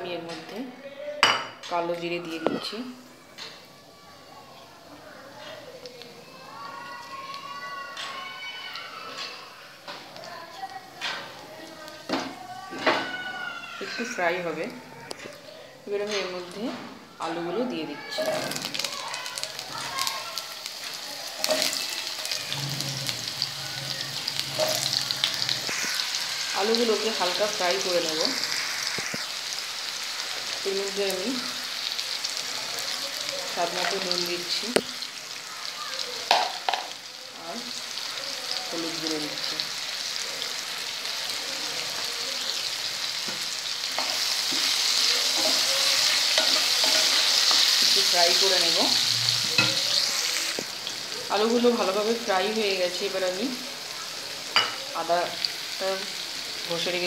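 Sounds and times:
potatoes sizzling in hot oil: 0:01.3 - 0:57.0
spatula scraping a pan: 0:43.9 - 0:48.1.

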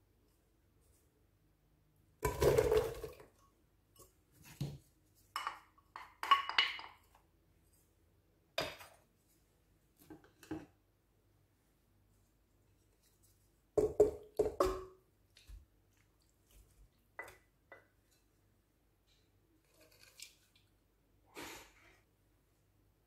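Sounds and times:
clinks and taps against metal pot: 0:05.4 - 0:07.0.

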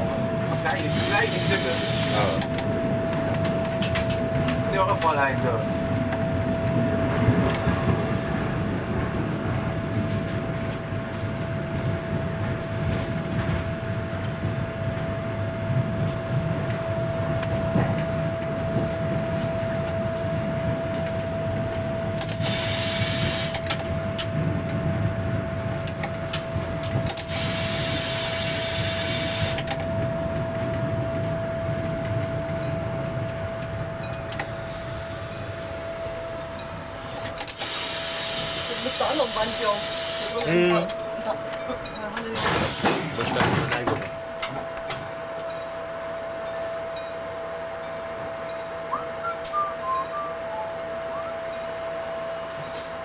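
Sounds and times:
railbus engine and wheels rumbling: 0:00.0 - 0:53.0
constant high tone: 0:44.2 - 0:53.0.

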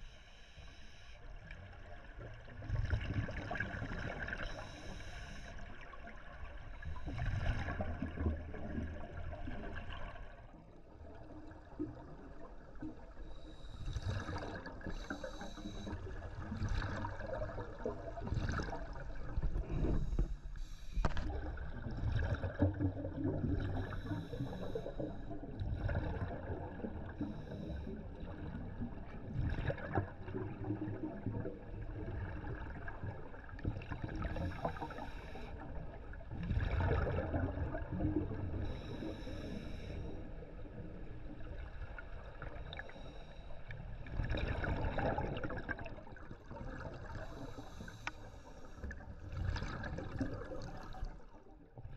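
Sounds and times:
diver breathing through regulator: 0:04.4 - 0:05.7, 0:13.2 - 0:17.1, 0:19.4 - 0:21.4, 0:23.7 - 0:25.4, 0:27.1 - 0:28.1, 0:34.3 - 0:35.7, 0:38.5 - 0:40.4, 0:42.6 - 0:43.9, 0:47.0 - 0:49.0.

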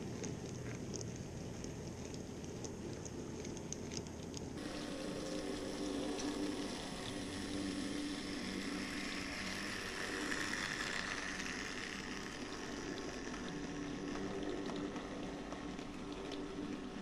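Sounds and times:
model train motors whirring: 0:04.6 - 0:17.0.

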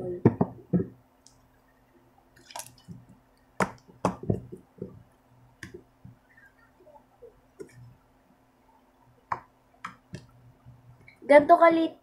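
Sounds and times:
slime squishing: 0:02.4 - 0:04.6.

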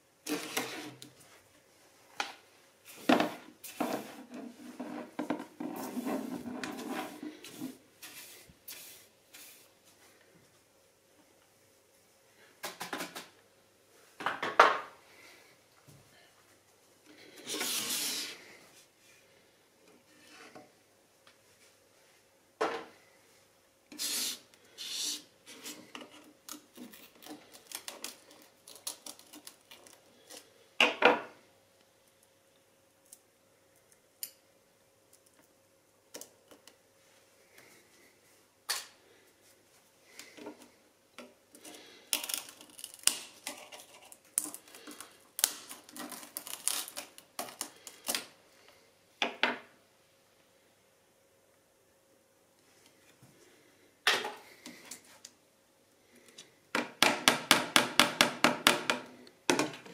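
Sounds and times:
clicks and scrapes of small parts: 0:41.2 - 0:48.3.

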